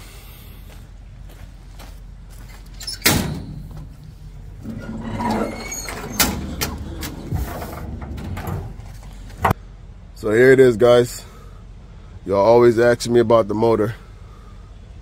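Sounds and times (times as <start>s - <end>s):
hood creaking: 2.7s - 9.6s.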